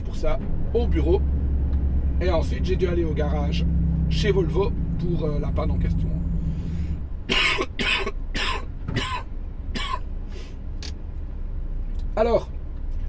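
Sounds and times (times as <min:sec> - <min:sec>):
truck cab drone: 0:00.0 - 0:13.0
man coughing and clearing throat: 0:07.3 - 0:10.1.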